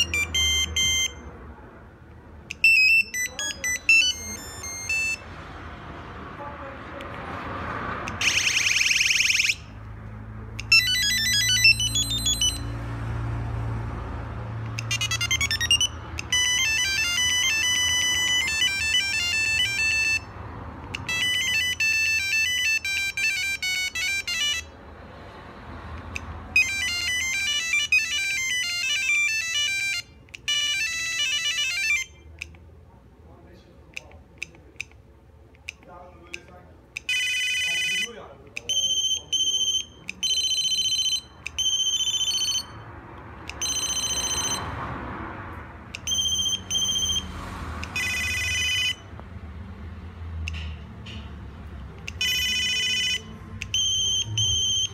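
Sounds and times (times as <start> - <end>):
mobile phone ringtone beeps: 0.0 - 1.4, 2.5 - 5.4, 8.1 - 9.8, 10.6 - 12.8, 14.7 - 20.4, 21.0 - 24.7, 26.5 - 32.4, 37.0 - 42.9, 43.5 - 44.7, 46.0 - 47.3, 47.9 - 49.1, 52.1 - 54.9.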